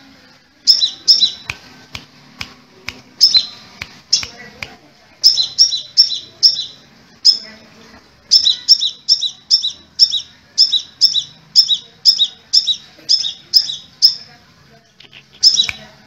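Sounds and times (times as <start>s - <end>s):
bird sharp high chirps: 0.7s - 1.5s, 3.2s - 4.4s, 5.2s - 7.5s, 8.3s - 14.3s, 15.4s - 15.9s.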